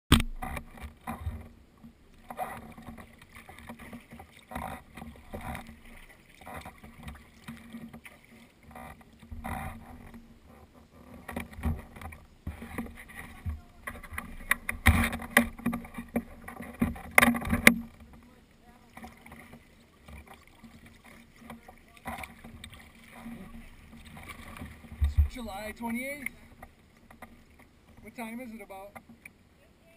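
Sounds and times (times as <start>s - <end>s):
water splashing against kayak hull: 0.1s - 29.5s.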